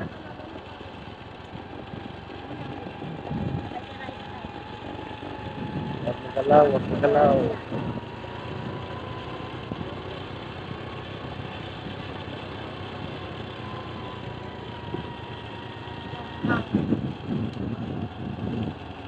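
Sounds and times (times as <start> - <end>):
road noise: 0.0 - 19.0
small motorcycle engine running: 0.0 - 19.0
wind noise: 2.9 - 3.7, 5.4 - 9.0, 16.3 - 18.8.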